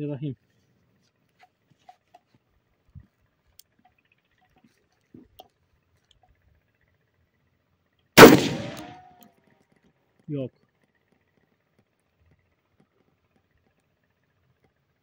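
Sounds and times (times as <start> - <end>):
shotgun shot: 8.2 - 9.1.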